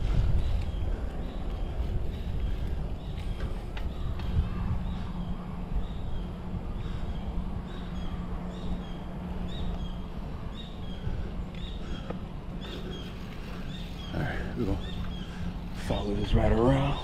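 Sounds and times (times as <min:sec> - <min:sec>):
road rumble: 0:00.0 - 0:17.0
wind: 0:00.0 - 0:17.0.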